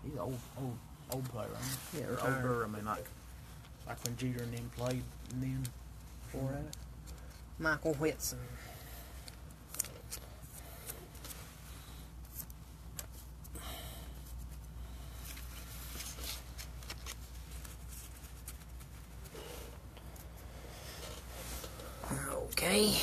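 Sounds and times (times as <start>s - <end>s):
steady low hum: 0.0s - 23.0s
cards rustling and clicking: 3.6s - 8.0s, 9.1s - 11.6s, 12.2s - 13.5s, 15.2s - 20.4s.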